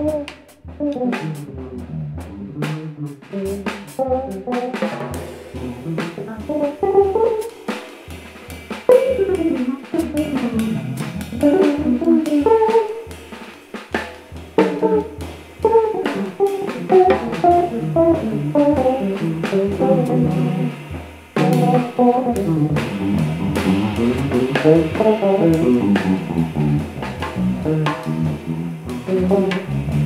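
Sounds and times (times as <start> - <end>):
drum kit groove: 0.0 - 30.0
electric bass solo: 0.8 - 7.5, 8.9 - 13.0, 14.6 - 30.0.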